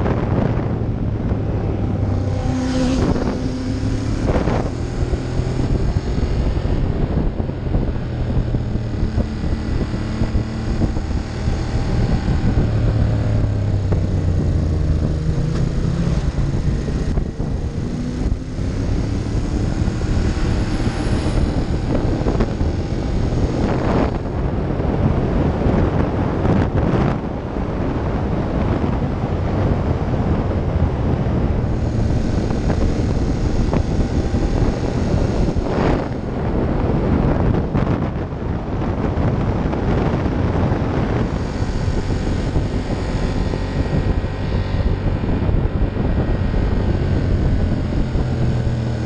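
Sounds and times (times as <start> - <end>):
motorcycle engine revving: 0.0 - 49.0
wind noise on microphone: 0.0 - 49.0.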